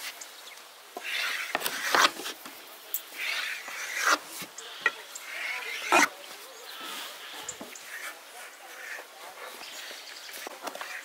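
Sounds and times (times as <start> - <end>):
knife scraping through dough: 1.0 - 2.4, 3.2 - 6.1.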